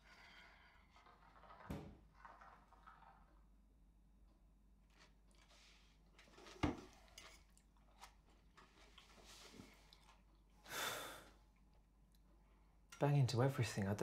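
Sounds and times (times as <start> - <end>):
faint eating: 4.9 - 12.4.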